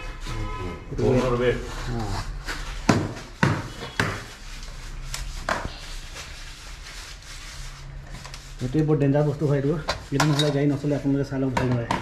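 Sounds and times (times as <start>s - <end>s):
metal parts and tools knocking: 10.2s - 10.6s.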